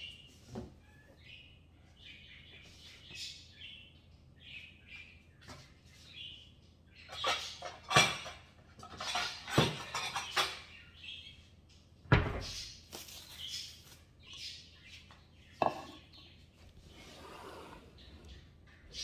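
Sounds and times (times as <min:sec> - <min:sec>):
ceramic plates clattering: 0:07.1 - 0:10.8, 0:15.6 - 0:16.2.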